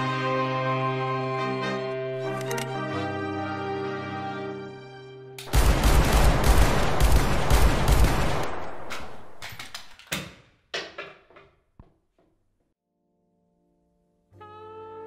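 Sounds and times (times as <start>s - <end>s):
rapid pistol gunfire: 5.5s - 9.4s.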